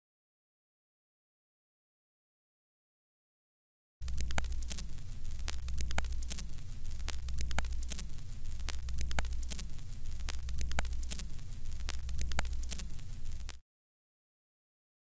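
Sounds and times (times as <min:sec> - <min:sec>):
crackling pops: 0:04.0 - 0:13.6
static hiss: 0:04.0 - 0:13.6
steady low hum: 0:04.0 - 0:13.6.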